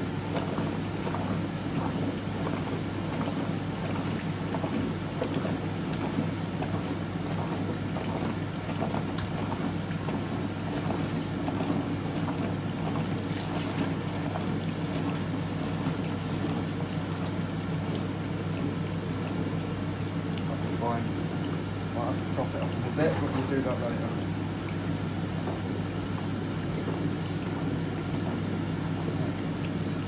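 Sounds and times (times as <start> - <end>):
washing machine motor hum: 0.0 - 30.0
water churning in tub: 0.0 - 30.0.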